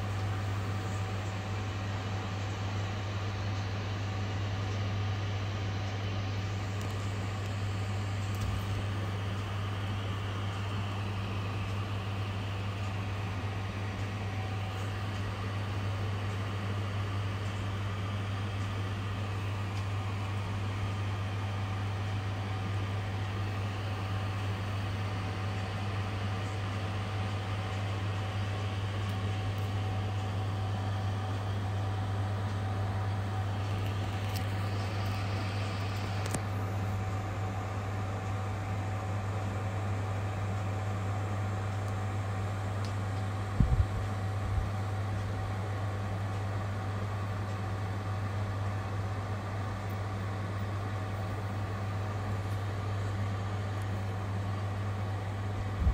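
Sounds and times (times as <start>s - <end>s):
low mechanical hum: 0.0s - 55.9s.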